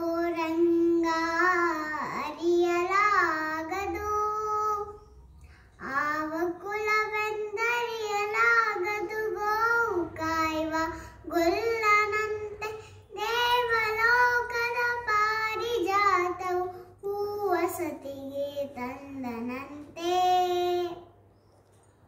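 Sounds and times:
girl singing: 0.0 - 21.2
short breaths: 5.4 - 5.8, 10.9 - 11.2, 12.7 - 13.1.

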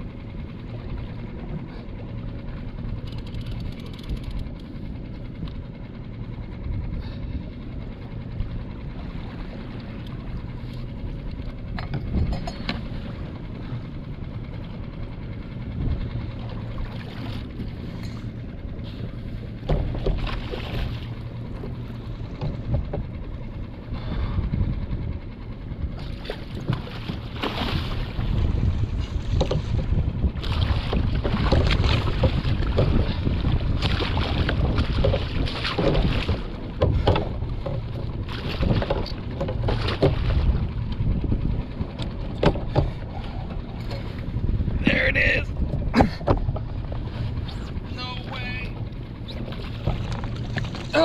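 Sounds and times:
water slapping against a boat: 0.0 - 51.0
wind rumbling on microphone: 5.3 - 51.0
knocks and splashes: 19.5 - 23.1, 26.0 - 41.0, 41.9 - 44.2, 45.7 - 47.7, 49.4 - 51.0.

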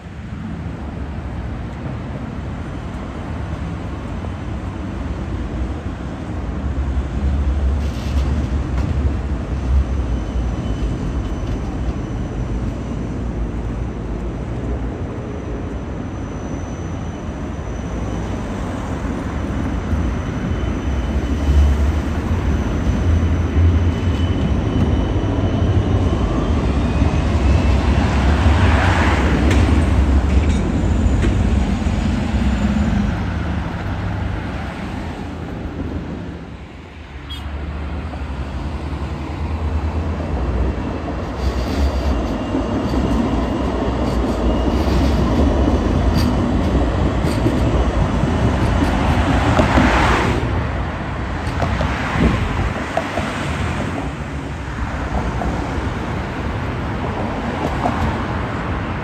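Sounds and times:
road traffic: 0.0 - 59.0
tram wheels rumbling: 0.0 - 59.0.

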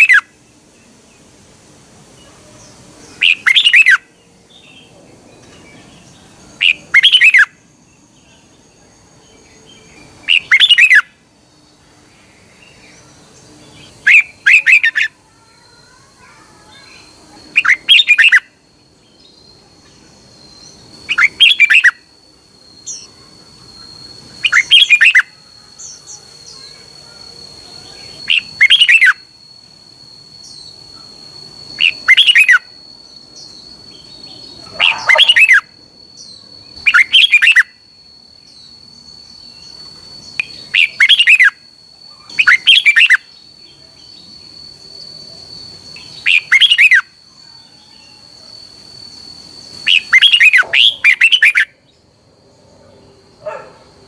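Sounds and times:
faint high-pitched tone: 1.9 - 54.0
bird singing short phrases: 12.4 - 18.5, 33.4 - 35.6.

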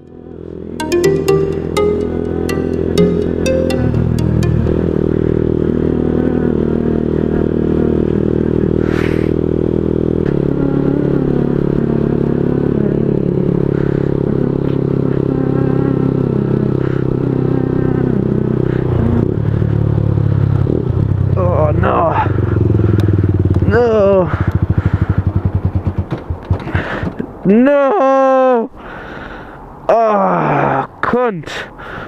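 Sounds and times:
motorcycle engine running: 22.3 - 26.4.

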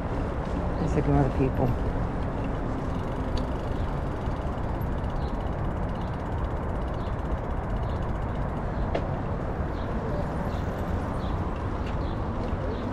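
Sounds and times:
faint rapid ticking: 2.9 - 8.8.

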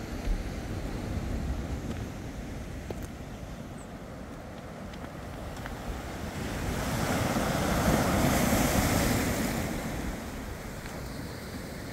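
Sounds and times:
wind rumbling on microphone: 0.0 - 11.9
sea waves breaking over rocks: 4.0 - 11.9.

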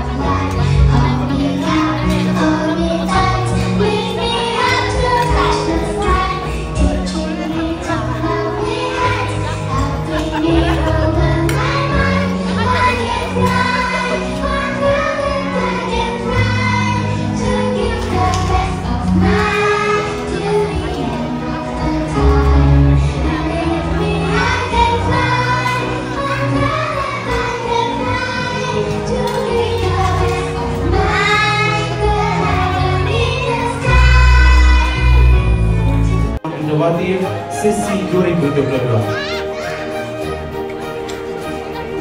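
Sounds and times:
children singing: 0.0 - 36.0
backing music track: 0.0 - 42.0
steady bass notes: 32.8 - 36.5.

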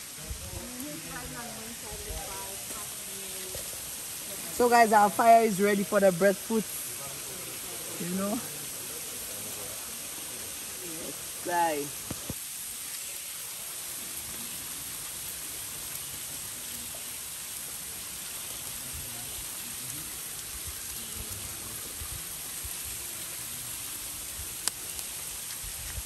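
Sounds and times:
river water and waterfall rushing: 0.0 - 17.2.

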